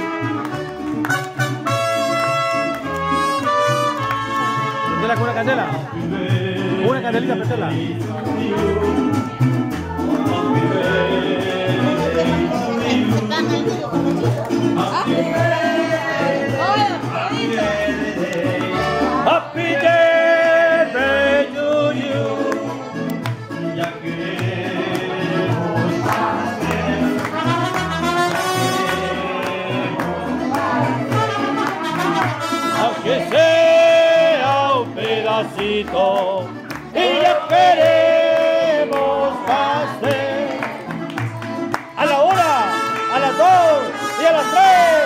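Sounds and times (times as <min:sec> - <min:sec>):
trumpets: 0:00.0 - 0:05.4, 0:27.3 - 0:29.2, 0:31.1 - 0:33.2, 0:42.0 - 0:45.0
bass line: 0:00.0 - 0:45.0
person singing: 0:10.1 - 0:13.9, 0:23.8 - 0:40.9.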